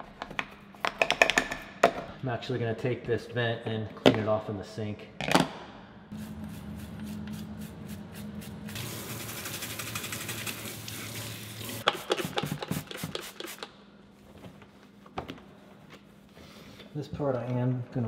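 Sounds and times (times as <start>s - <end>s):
toothbrush scrubbing plastic: 6.4s - 10.7s
faucet running water into sink: 8.8s - 11.8s.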